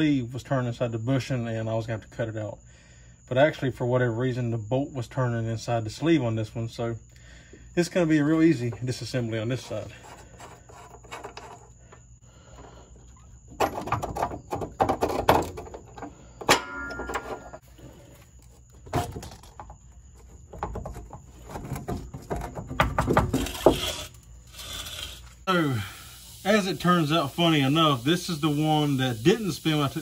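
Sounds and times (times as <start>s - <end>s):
hand tools clanking on metal: 13.6s - 17.6s
metal clattering: 13.6s - 17.6s
sharp ringing metal strike: 16.5s - 17.6s.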